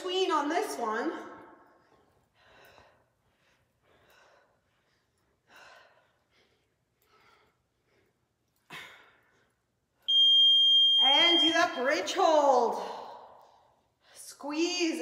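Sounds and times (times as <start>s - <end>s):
timer high beep: 10.1s - 12.1s.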